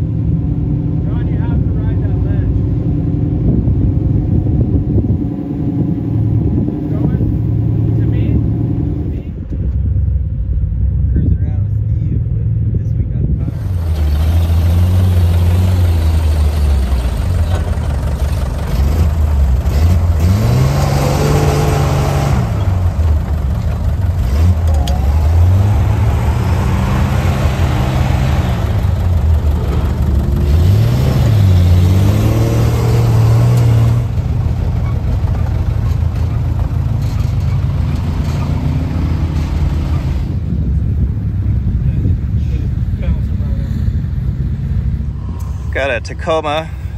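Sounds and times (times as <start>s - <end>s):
truck engine revving: 13.3s - 46.9s.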